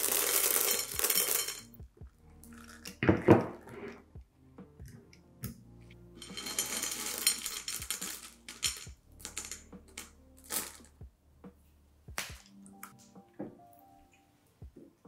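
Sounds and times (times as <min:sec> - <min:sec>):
wafers rattling in a glass bowl: 0:00.0 - 0:01.7, 0:06.2 - 0:10.9.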